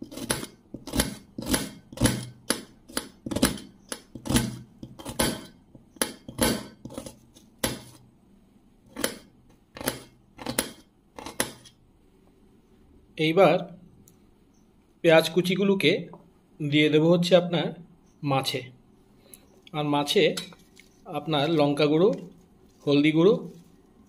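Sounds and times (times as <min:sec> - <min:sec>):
knife chopping on metal plate: 0:00.0 - 0:08.0, 0:08.9 - 0:11.8.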